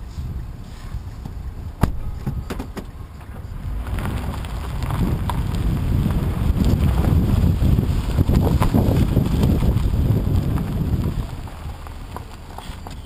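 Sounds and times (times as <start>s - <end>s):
wind on microphone: 0.0s - 12.9s
tyres rumbling on gravel: 0.0s - 13.0s.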